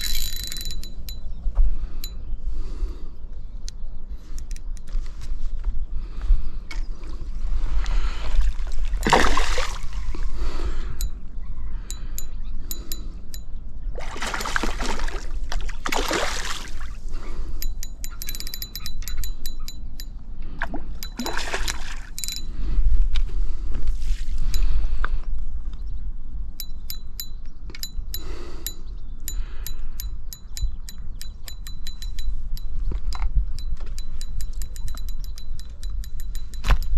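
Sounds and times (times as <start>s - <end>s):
fishing reel clicking: 0.0s - 1.2s, 17.4s - 20.1s, 21.0s - 22.5s, 26.6s - 36.9s
wind rumble on microphone: 0.0s - 15.8s, 16.6s - 36.9s
fish splashing in water: 8.4s - 10.3s, 14.0s - 17.0s, 21.1s - 22.2s.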